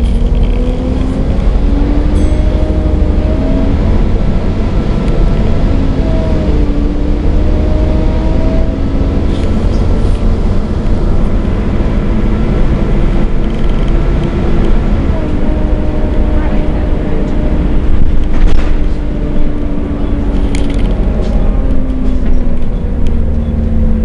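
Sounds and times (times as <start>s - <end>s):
bus engine rumbling: 0.0s - 24.0s
droning tone: 0.0s - 24.0s.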